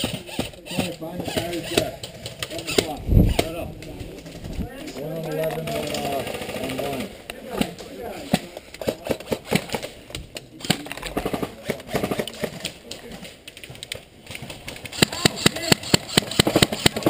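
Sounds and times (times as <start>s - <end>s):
airsoft gun shots: 14.9s - 17.0s.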